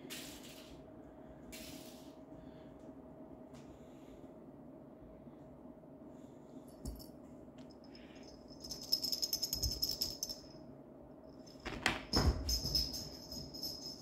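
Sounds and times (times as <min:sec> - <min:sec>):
small bell jingling: 0:07.8 - 0:10.6, 0:12.2 - 0:14.0.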